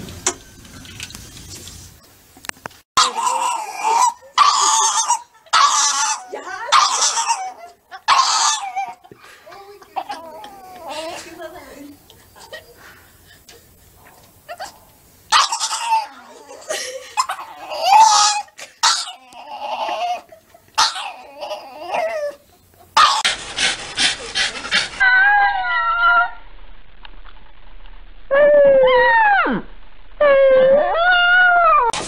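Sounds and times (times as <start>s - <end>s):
dog howling: 3.0s - 9.0s, 15.4s - 22.4s, 25.0s - 26.5s, 28.3s - 32.0s
dog whining and yowling: 3.0s - 9.0s, 15.3s - 22.4s, 25.0s - 26.5s, 28.3s - 32.0s.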